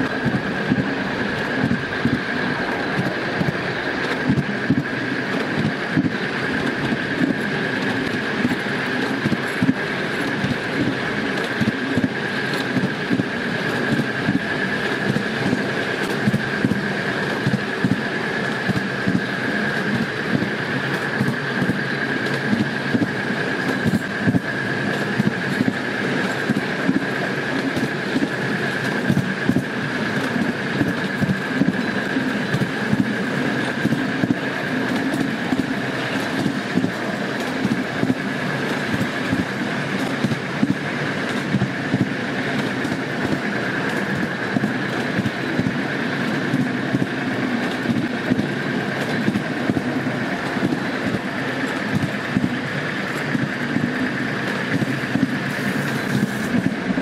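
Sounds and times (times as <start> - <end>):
miniature locomotive whine: 0.0 - 57.0
wheels clicking over rail joints: 18.6 - 57.0.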